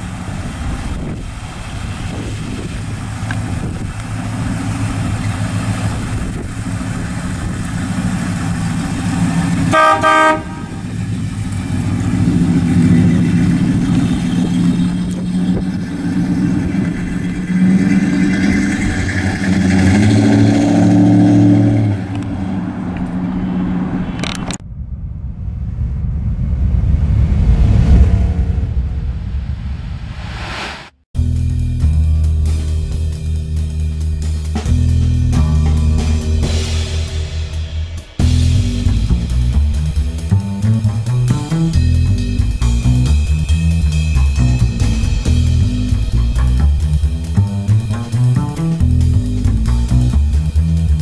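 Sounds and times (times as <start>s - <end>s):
low whoosh: 0.0s - 9.8s, 10.4s - 33.7s, 34.8s - 51.0s
car engine driving off: 0.0s - 30.6s, 31.8s - 51.0s
car horn toot: 9.6s - 11.0s.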